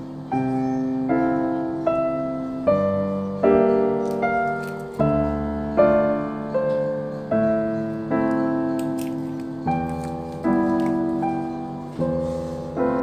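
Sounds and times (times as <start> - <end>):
solo piano music: 0.0 - 13.0.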